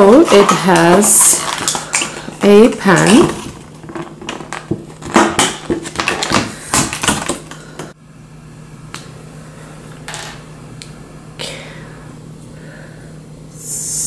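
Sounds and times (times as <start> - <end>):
plastic packaging crinkling: 0.0 - 7.6.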